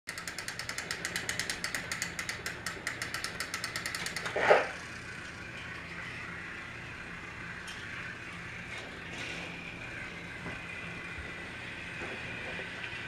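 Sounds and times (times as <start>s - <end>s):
toy train gears clicking: 0.1s - 8.2s
steady hum: 0.1s - 13.0s.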